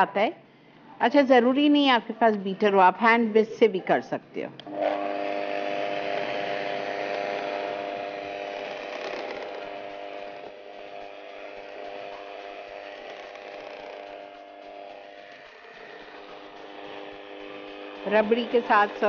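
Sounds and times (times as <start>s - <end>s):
electric hand mixer humming: 4.6s - 19.0s.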